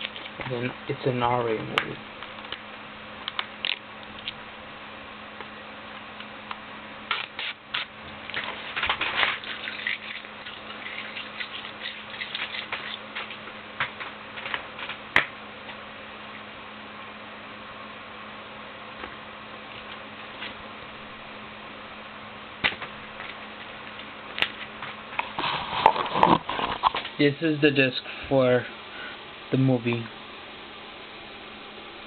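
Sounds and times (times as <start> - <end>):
low hum: 8.0 - 32.0.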